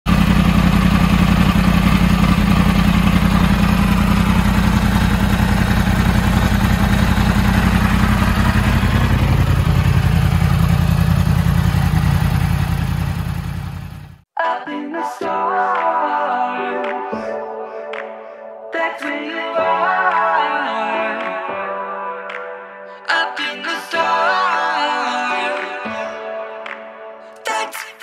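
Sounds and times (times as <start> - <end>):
motorcycle engine idling: 0.1 - 14.2.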